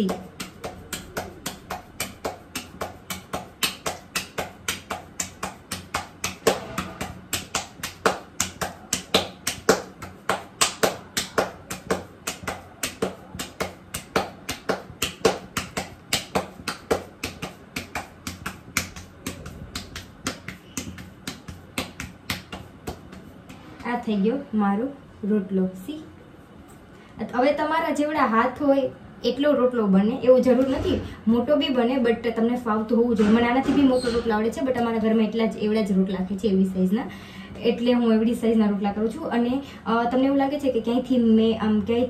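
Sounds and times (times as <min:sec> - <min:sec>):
dough slapped between palms: 0:00.0 - 0:23.9.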